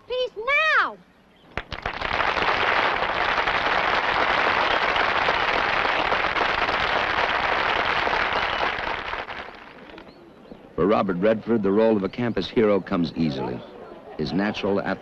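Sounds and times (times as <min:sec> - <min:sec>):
crowd applauding: 0:01.6 - 0:10.0.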